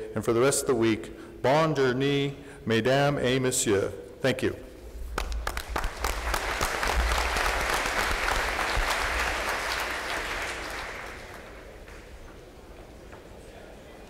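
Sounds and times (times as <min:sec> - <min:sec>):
audience applauding: 0:05.1 - 0:12.4.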